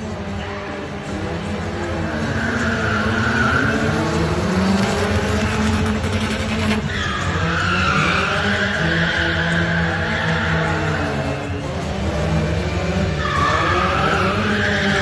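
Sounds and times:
car engines revving hard: 0:00.0 - 0:15.0
tyre squealing: 0:02.2 - 0:11.5.

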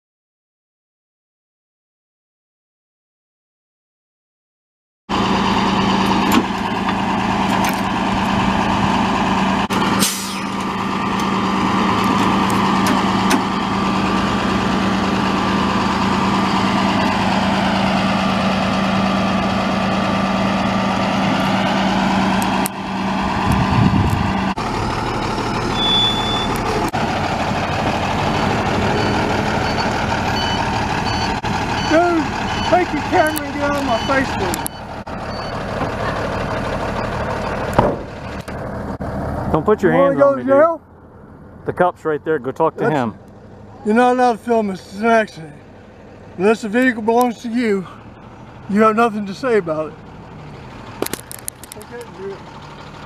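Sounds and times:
diesel engine running: 0:05.1 - 0:53.0
short high beeps: 0:25.8 - 0:26.6.

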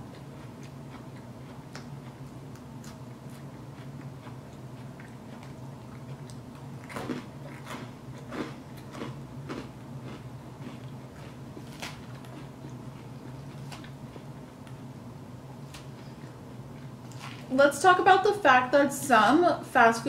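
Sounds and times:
person chewing food: 0:00.0 - 0:14.8
steady low hum: 0:00.0 - 0:20.0.

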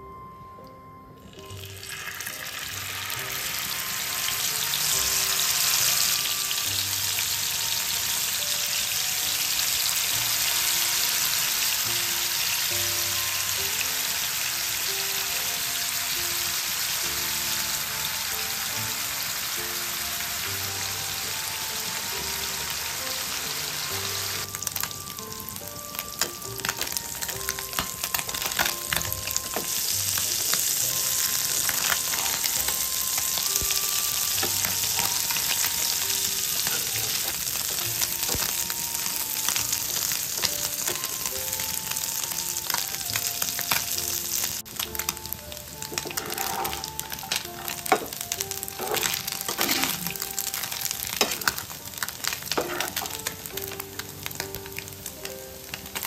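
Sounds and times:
fish sizzling in hot oil: 0:01.4 - 0:56.0
oil crackling and popping: 0:24.4 - 0:56.0.

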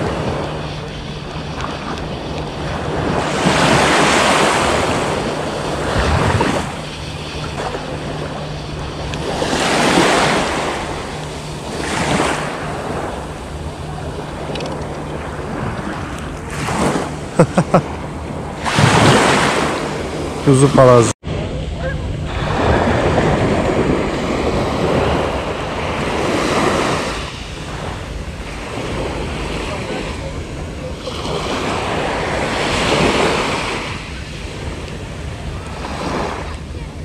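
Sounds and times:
steady low hum: 0:00.0 - 0:37.0
waves washing up pebble beach: 0:02.3 - 0:08.4, 0:09.2 - 0:13.3.

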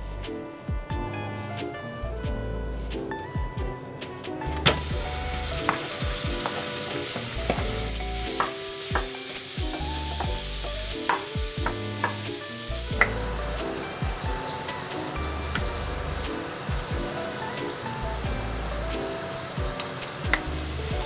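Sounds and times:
background music: 0:00.0 - 0:21.0
meat sizzling in frying pan: 0:04.6 - 0:21.0.

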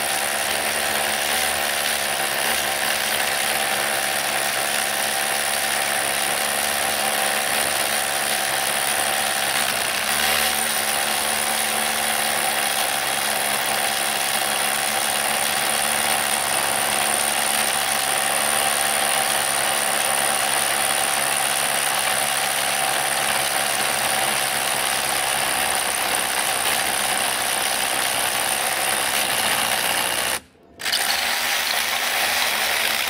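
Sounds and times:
rotary hammer drilling masonry: 0:00.0 - 0:33.0.

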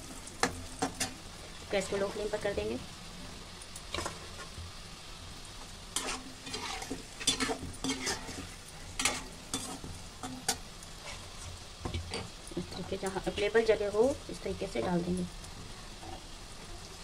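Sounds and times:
dough deep-frying in oil: 0:00.0 - 0:17.0
metal spoon scraping pan: 0:05.9 - 0:12.3.

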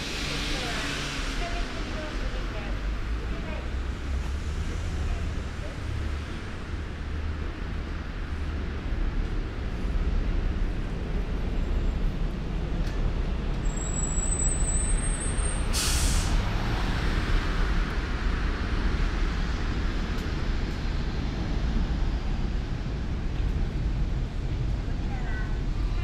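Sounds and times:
road traffic rumbling: 0:00.0 - 0:26.0
bus air brakes hissing: 0:13.7 - 0:16.8.

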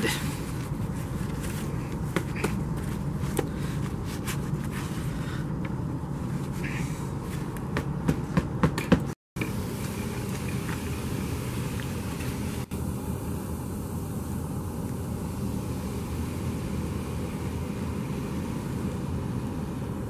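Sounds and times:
sand crunching and scraping: 0:00.0 - 0:05.3
steady low rumble: 0:00.0 - 0:20.0.

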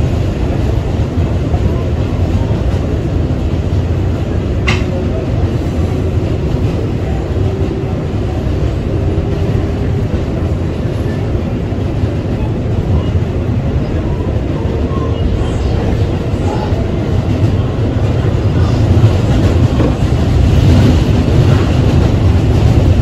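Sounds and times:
subway train wheels rumbling on rail: 0:00.0 - 0:23.0
sharp rail clack: 0:04.6 - 0:05.0.

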